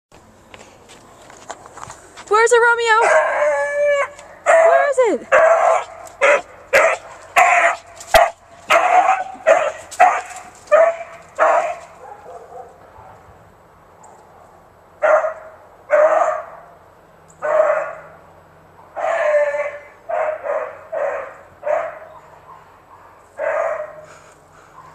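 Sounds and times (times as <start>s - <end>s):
dog barking: 3.0s - 13.3s, 15.0s - 16.7s, 17.4s - 18.1s, 19.0s - 24.1s.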